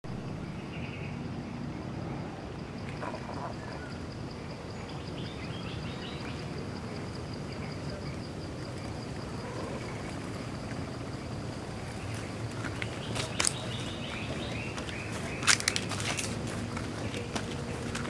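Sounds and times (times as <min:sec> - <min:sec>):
insect high-pitched pulsed call: 0:00.3 - 0:17.9.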